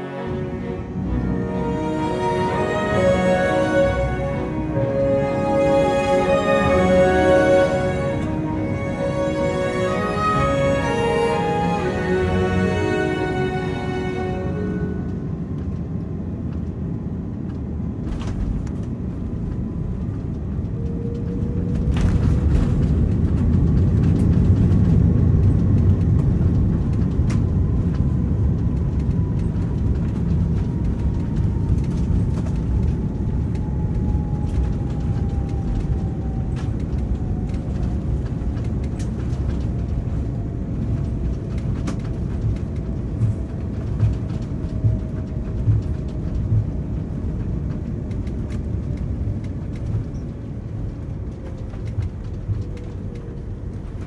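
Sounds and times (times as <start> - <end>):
jet engine whine winding down: 0.0 - 54.0
rumble of wheels and engines: 0.0 - 54.0
faint rattles and clicks: 5.3 - 54.0.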